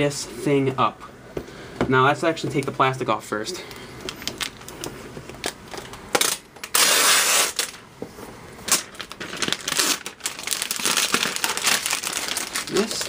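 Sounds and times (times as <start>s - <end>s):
plastic crinkling and rustling: 3.7s - 6.8s, 7.5s - 13.0s.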